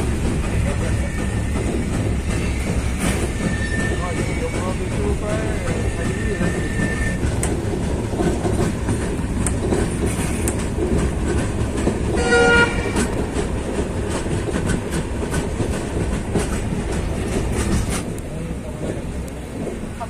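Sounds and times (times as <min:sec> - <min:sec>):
train wheels on rails: 0:00.0 - 0:20.0
train horn blast: 0:12.1 - 0:13.1.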